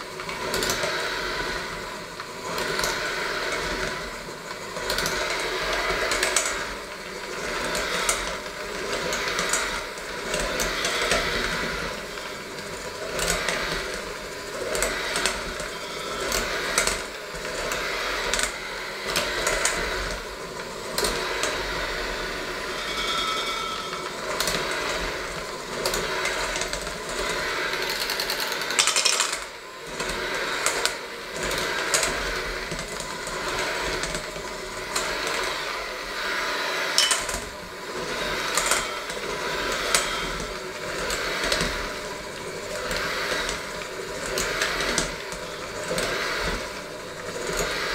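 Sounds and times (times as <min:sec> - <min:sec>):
electric hand mixer running: 0:00.0 - 0:47.9
beaters knocking against metal bowl: 0:22.7 - 0:24.6, 0:37.0 - 0:37.4.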